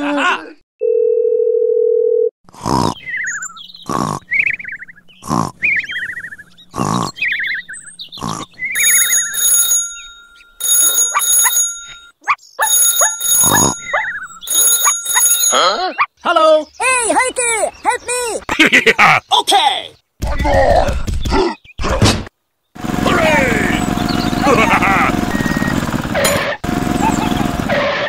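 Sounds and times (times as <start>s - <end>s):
cartoon snoring: 2.5s - 3.1s, 3.8s - 4.4s, 5.2s - 5.8s, 6.7s - 7.3s, 8.2s - 8.6s
phone ringtone: 8.8s - 15.9s.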